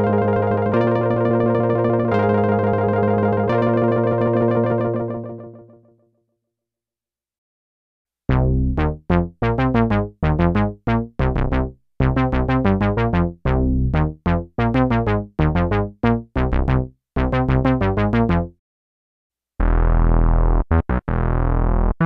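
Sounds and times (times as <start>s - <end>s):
synth plucked notes: 0.0s - 5.7s, 19.6s - 22.0s.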